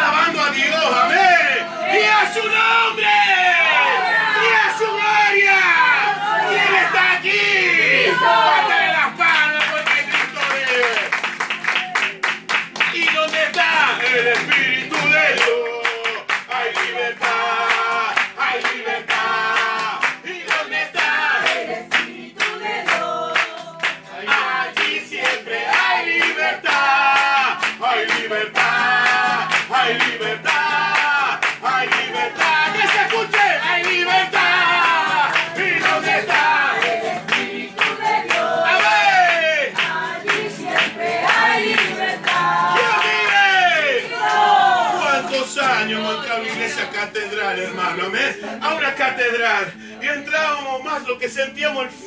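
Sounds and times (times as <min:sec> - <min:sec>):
congregation singing worship song: 0:00.0 - 0:10.8, 0:12.8 - 0:51.0
acoustic guitar: 0:00.0 - 0:52.0
congregation clapping in time: 0:08.7 - 0:46.6.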